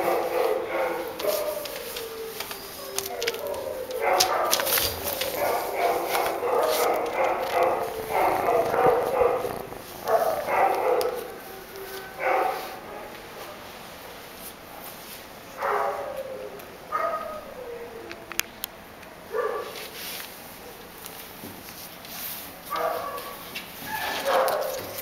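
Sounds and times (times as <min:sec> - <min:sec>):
dogs barking: 0:00.0 - 0:13.6, 0:15.5 - 0:17.9, 0:19.2 - 0:19.8, 0:22.7 - 0:25.0.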